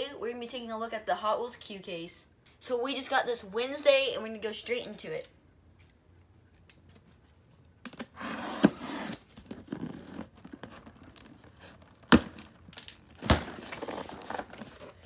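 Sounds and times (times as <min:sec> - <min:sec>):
tape tearing: 0:07.8 - 0:15.0
cardboard scraping: 0:08.0 - 0:12.6, 0:13.2 - 0:15.0.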